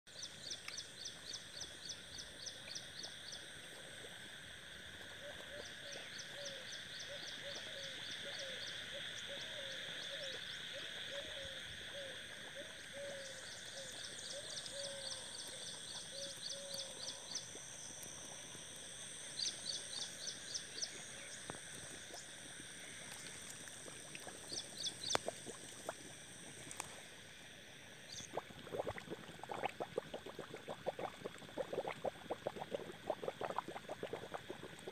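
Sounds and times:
insects buzzing and trilling: 0:00.1 - 0:34.9
low frog call: 0:05.2 - 0:17.6, 0:19.3 - 0:27.0, 0:28.0 - 0:34.9.

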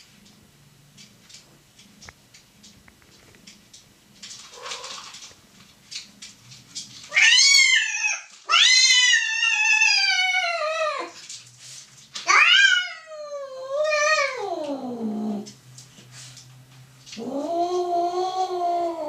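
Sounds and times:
cat yowling: 0:07.1 - 0:11.2, 0:12.3 - 0:15.5.

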